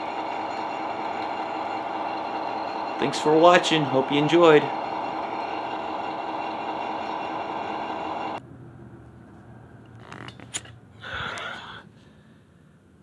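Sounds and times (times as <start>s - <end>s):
model train humming: 0.0s - 8.4s.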